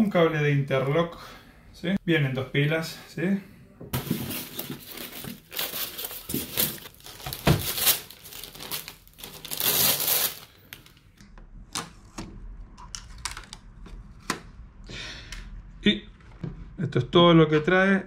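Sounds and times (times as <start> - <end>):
plastic bag crinkling: 4.2 - 11.0.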